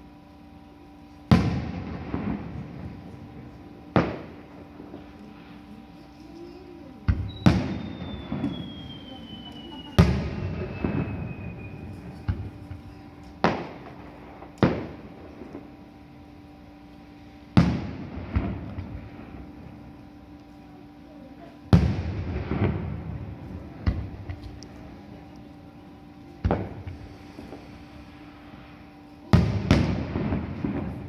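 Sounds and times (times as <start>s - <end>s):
firework crackling: 1.3s - 15.8s, 17.0s - 31.0s
falling firework whistle: 5.5s - 15.0s
firework shells bursting: 7.1s - 15.6s.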